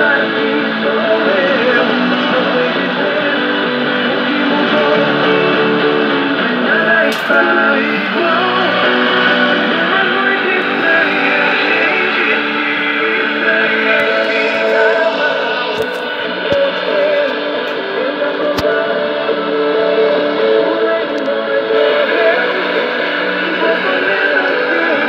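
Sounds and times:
guitar music over radio speaker: 0:00.0 - 0:25.0
sharp click: 0:07.1 - 0:07.4.

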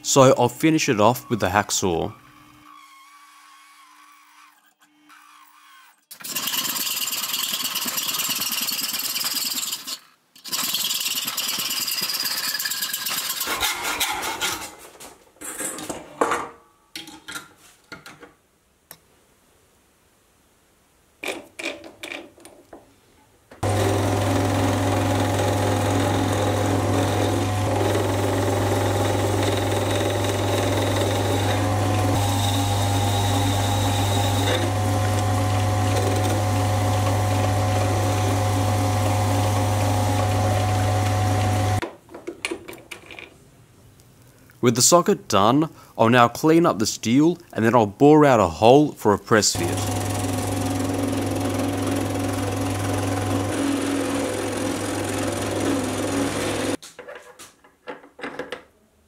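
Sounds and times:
lathe motor hum and whine: 0:23.6 - 0:41.8, 0:49.6 - 0:56.8.

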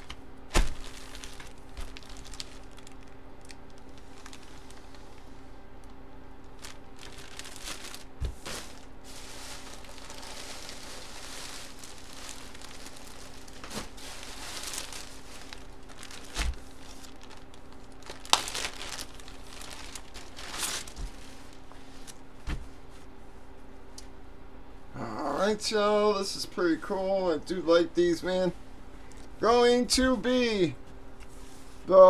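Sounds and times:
plastic packaging crinkling: 0:00.0 - 0:22.3
faint steady hum: 0:00.0 - 0:32.0.

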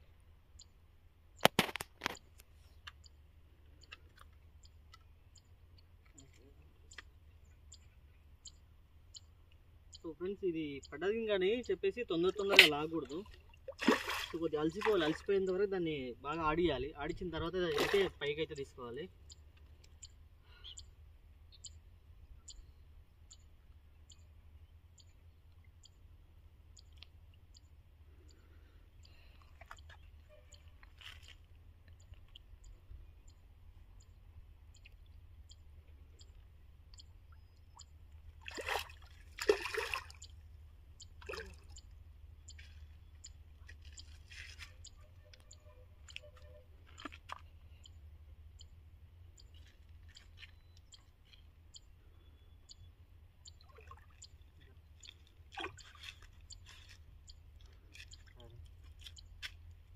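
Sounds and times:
fish splashing in water: 0:13.3 - 0:15.2, 0:38.4 - 0:40.4, 0:41.2 - 0:41.8.

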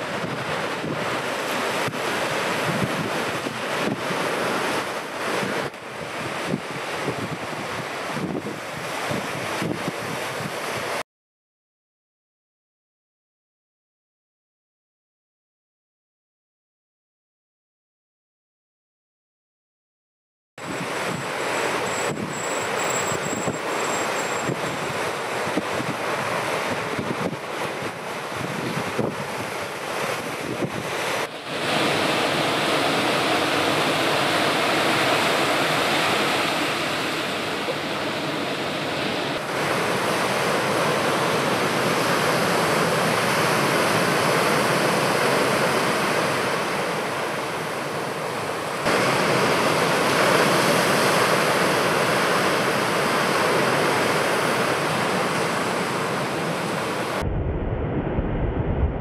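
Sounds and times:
ocean waves breaking: 0:00.0 - 0:11.0, 0:20.6 - 0:57.3
dull low rumble: 0:57.2 - 0:59.0.

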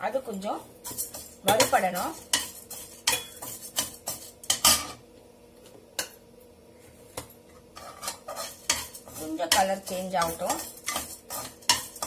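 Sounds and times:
metal ladle scraping a pan: 0:00.8 - 0:04.9, 0:07.8 - 0:12.0.

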